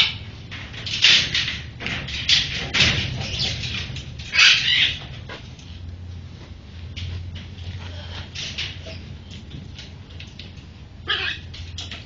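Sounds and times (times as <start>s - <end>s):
macaws screeching: 4.3s - 5.0s, 11.0s - 11.5s.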